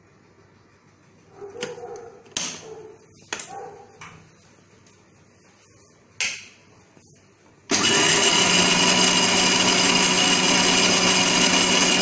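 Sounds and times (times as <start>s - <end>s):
mixer grinder motor running: 7.7s - 12.0s.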